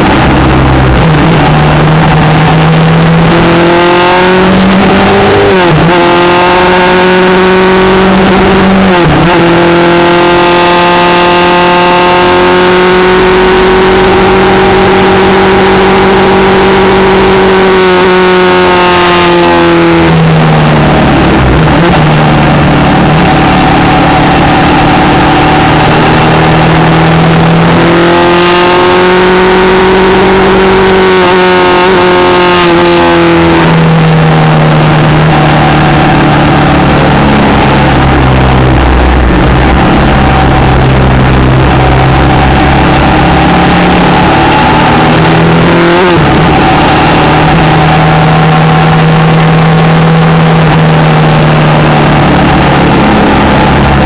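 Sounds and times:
motorcycle engine cruising: 0:00.0 - 0:54.0
wind rush: 0:34.8 - 0:49.0.

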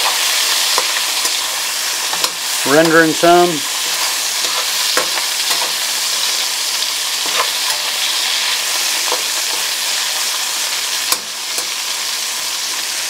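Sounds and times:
spatula scraping and tapping pan: 0:00.0 - 0:01.5, 0:02.1 - 0:03.0, 0:03.8 - 0:06.5, 0:07.2 - 0:08.0, 0:08.8 - 0:09.8
meat sizzling in a wok: 0:00.0 - 0:13.0.

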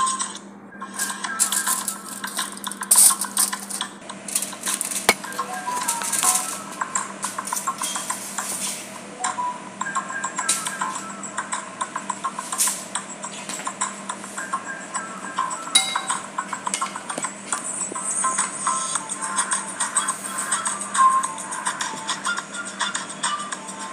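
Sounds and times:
aluminium foil crinkling: 0:01.0 - 0:08.7.

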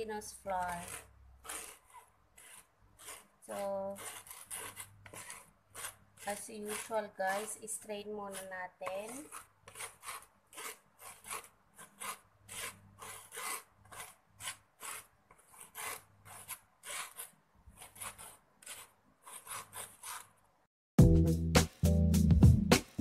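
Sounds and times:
scraper rasping on wire mesh: 0:00.0 - 0:20.4
background music: 0:21.0 - 0:23.0.

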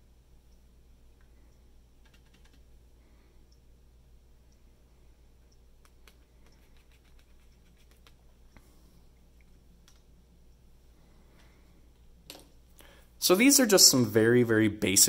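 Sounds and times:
low steady hum: 0:00.0 - 0:15.0
paintbrush brushing on paper: 0:06.1 - 0:08.4.

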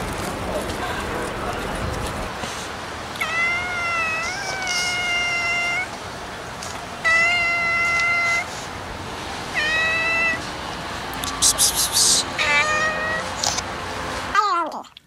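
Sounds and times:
cat meowing: 0:03.2 - 0:05.9, 0:07.0 - 0:08.5, 0:09.5 - 0:10.5, 0:12.4 - 0:13.4.

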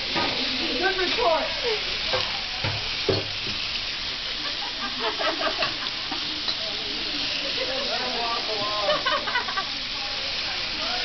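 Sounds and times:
beef sizzling in a wok: 0:00.0 - 0:11.0.

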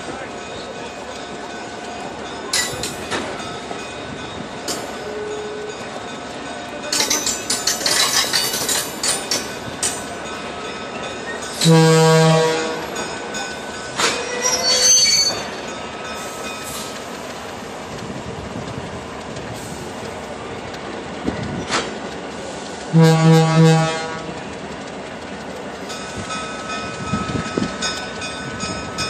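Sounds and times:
train rumble and clickety-clack: 0:00.0 - 0:29.0
locomotive horn: 0:11.6 - 0:13.0, 0:22.9 - 0:24.4
wheels squealing: 0:14.0 - 0:17.3.

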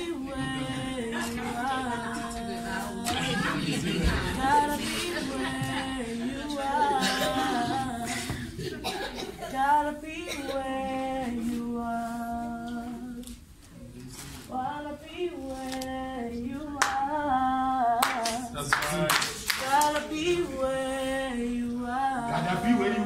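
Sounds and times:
person singing unaccompanied: 0:00.0 - 0:08.7, 0:09.3 - 0:13.5, 0:14.5 - 0:18.7, 0:19.6 - 0:23.0
hand claps: 0:16.8 - 0:17.0, 0:18.0 - 0:20.2.

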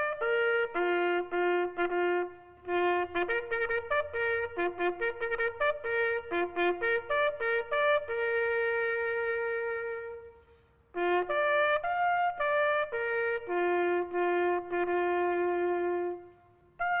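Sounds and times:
solo bugle playing: 0:00.0 - 0:17.0.

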